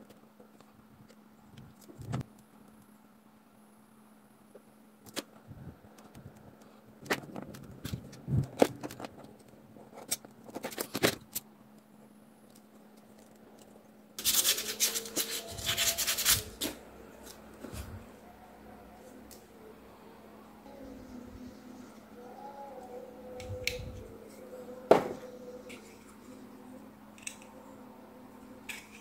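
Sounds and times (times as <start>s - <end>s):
faint low hum: 0.0s - 29.0s.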